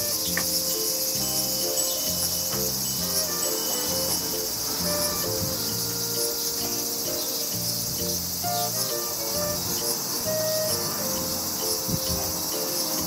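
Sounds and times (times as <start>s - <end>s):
insect chorus: 0.0s - 13.0s
soft background music: 0.0s - 13.0s.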